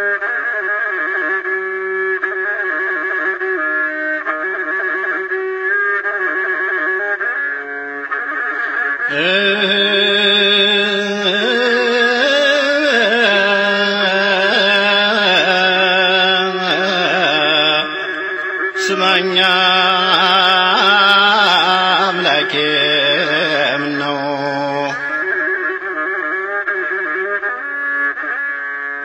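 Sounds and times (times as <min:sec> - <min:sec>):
man singing a hymn: 0:09.1 - 0:18.2, 0:18.8 - 0:25.1.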